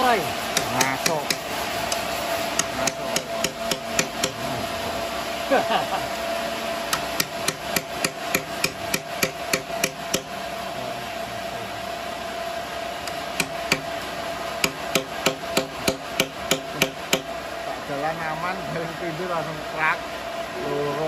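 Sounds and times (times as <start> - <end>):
steady hum: 0.0 - 21.0
hammer tapping steel punch: 0.5 - 2.0, 2.6 - 4.4, 6.9 - 10.3, 13.1 - 13.9, 14.6 - 17.3.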